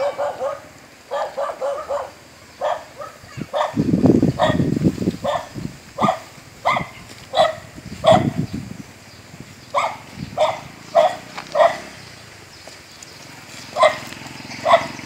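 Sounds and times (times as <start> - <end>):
dog barking: 0.0 - 3.8, 4.4 - 8.4, 9.7 - 12.0, 13.7 - 15.0.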